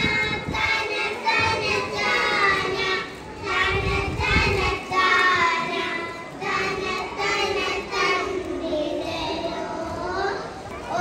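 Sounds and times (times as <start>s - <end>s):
children singing together: 0.0s - 11.0s.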